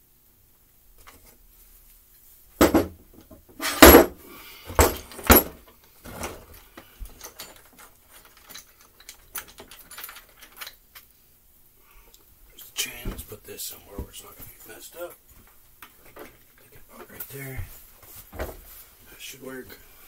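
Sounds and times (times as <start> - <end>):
chainsaw parts knocking and clattering: 2.6 - 10.7
light clicks and rattles: 4.8 - 11.1.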